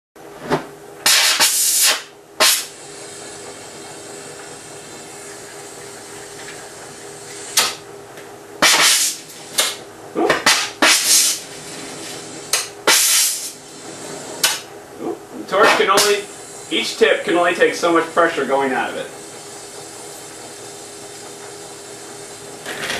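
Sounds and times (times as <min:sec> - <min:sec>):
hand torch gas bursts: 0:01.0 - 0:06.2, 0:08.6 - 0:09.8, 0:10.4 - 0:14.6, 0:15.8 - 0:22.9
glass lathe and burners hissing: 0:01.0 - 0:22.9.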